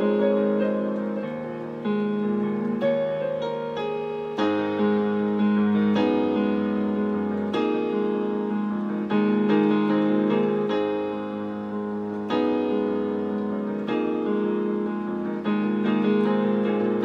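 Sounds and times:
electronic piano chords: 0.0s - 17.0s.

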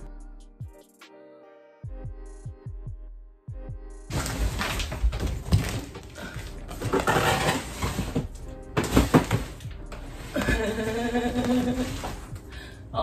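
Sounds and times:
background music: 0.0s - 13.0s
cardboard carton thumping: 4.1s - 9.6s.

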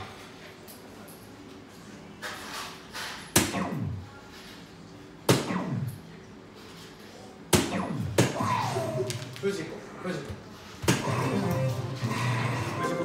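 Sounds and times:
darts hitting dartboard: 7.5s - 8.4s.

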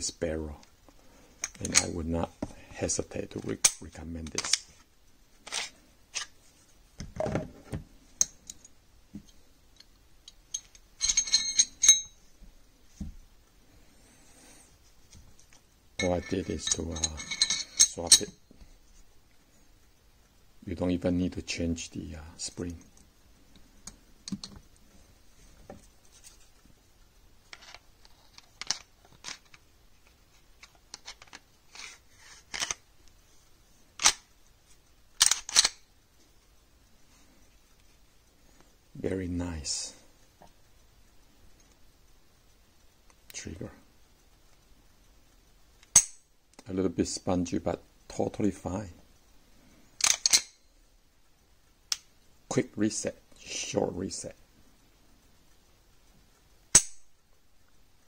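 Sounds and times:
pistol slide scraping: 5.4s - 6.4s
metallic clicks and clinks: 9.8s - 12.2s, 16.0s - 18.4s, 50.0s - 50.7s
pistol metal clicks: 56.7s - 57.0s.

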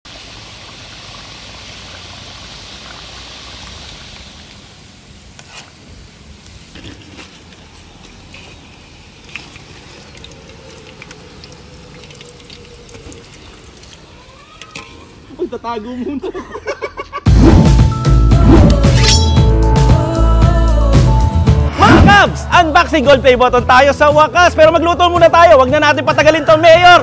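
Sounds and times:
frying sizzle with pops: 0.1s - 14.9s
liquid bubbling in a wok: 6.7s - 14.7s.

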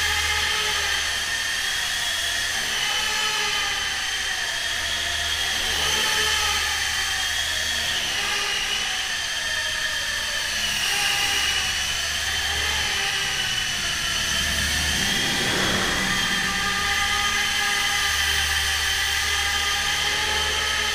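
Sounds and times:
electric motors whining: 0.0s - 20.9s
low hum: 11.7s - 19.4s.

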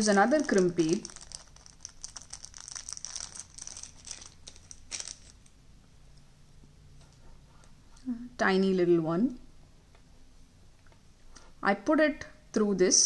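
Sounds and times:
plastic packet crinkling: 0.0s - 5.5s.

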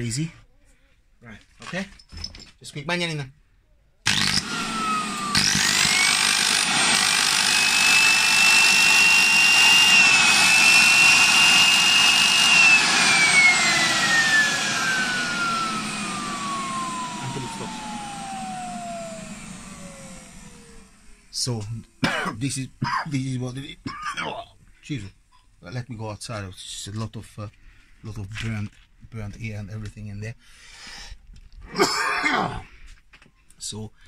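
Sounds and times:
motor brushes sparking: 4.1s - 20.8s
vacuum cleaner motor whine: 4.1s - 21.5s.

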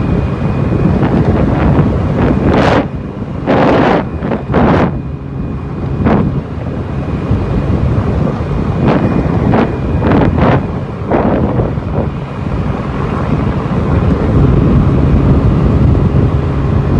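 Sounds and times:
wind buffeting a microphone: 0.0s - 16.9s.

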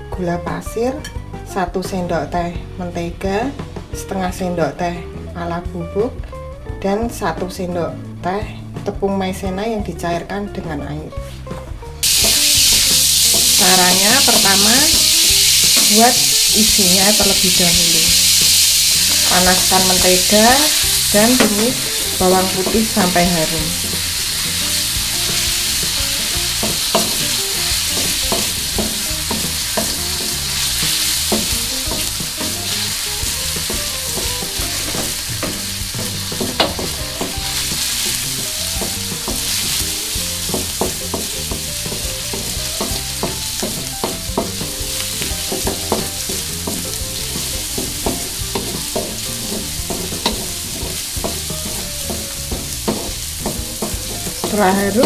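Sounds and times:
garlic sizzling in butter: 12.0s - 55.0s
wooden spatula scraping a pan: 19.1s - 55.0s.

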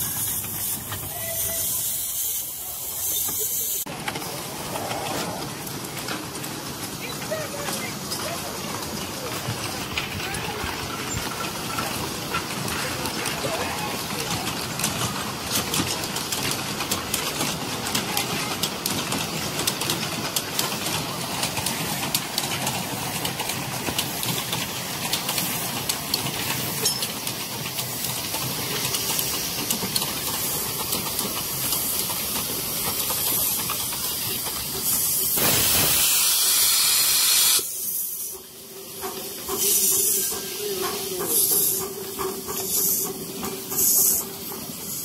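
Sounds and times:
loud steam hiss: 0.0s - 5.7s, 20.5s - 45.0s
steam locomotives clattering: 0.0s - 45.0s.

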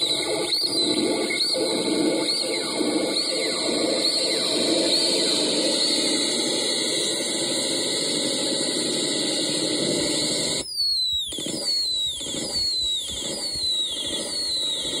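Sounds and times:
falling electronic chirp: 0.0s - 6.9s, 10.6s - 15.0s
hissing electronic drone: 0.0s - 15.0s.

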